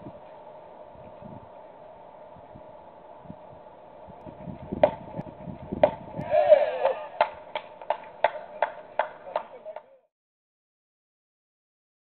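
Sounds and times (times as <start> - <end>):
sharp knocks: 4.8 - 5.1, 5.8 - 6.1.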